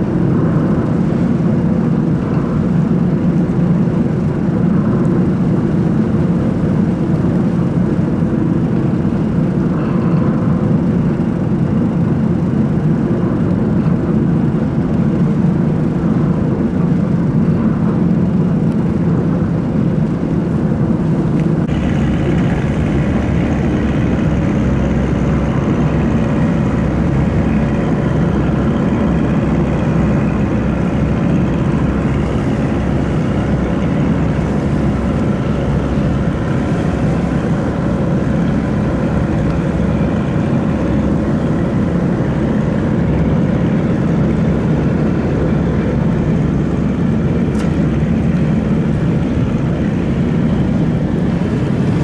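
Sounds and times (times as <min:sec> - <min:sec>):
boat engine droning: 0:00.0 - 0:52.0
deep rumble: 0:00.0 - 0:52.0
high whine: 0:00.0 - 0:52.0.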